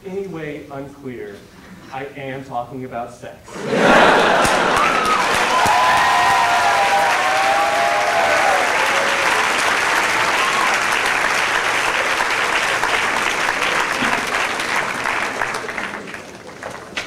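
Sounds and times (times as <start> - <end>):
audience applauding: 3.6 - 17.0.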